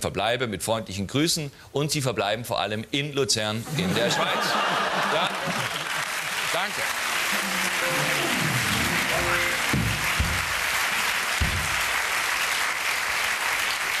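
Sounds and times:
audience applauding: 0:04.1 - 0:14.0
band playing musical sting: 0:07.1 - 0:10.6.

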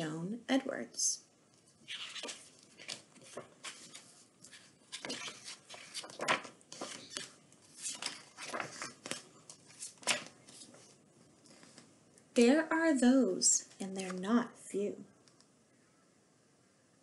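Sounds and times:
book pages rustling: 0:01.6 - 0:11.9.

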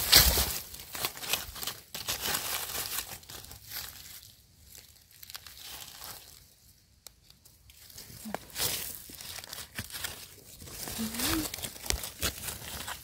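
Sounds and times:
dry leaves rustling: 0:00.0 - 0:13.0.

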